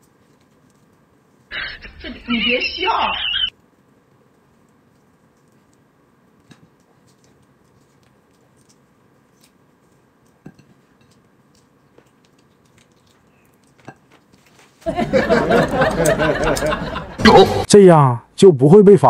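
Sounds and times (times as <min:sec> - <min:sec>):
bones tapping ceramic plate: 0:10.4 - 0:12.9.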